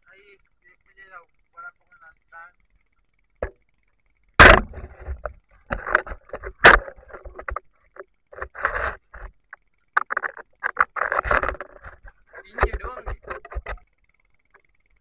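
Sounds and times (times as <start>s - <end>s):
sharp loud knocks: 4.4s - 5.2s.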